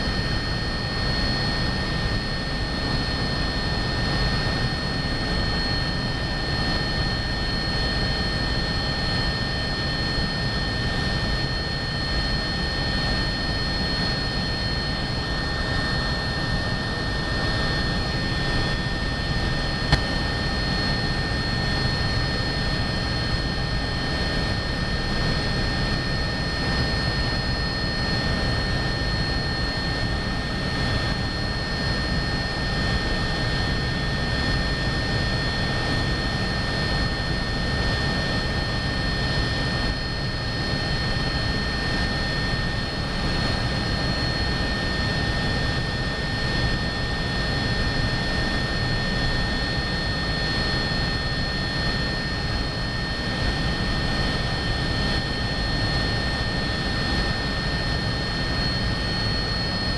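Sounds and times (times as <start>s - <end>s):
turbine whine: 0.0s - 59.9s.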